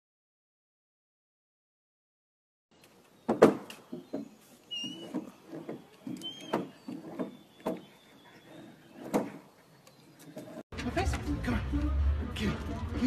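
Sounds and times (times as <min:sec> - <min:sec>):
stick knocking wooden railings: 0:03.3 - 0:08.0.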